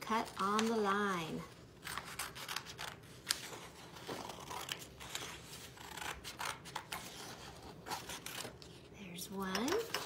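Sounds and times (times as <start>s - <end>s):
scissors snipping paper: 1.8s - 8.6s
paper rustling: 1.8s - 8.8s.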